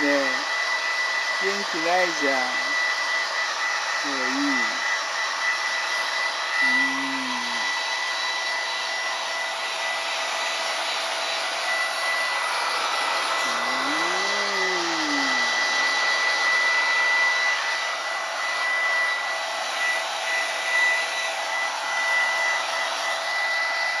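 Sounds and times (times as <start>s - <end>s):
hair dryer running: 0.0s - 24.0s
low voice-like moan: 13.5s - 15.6s.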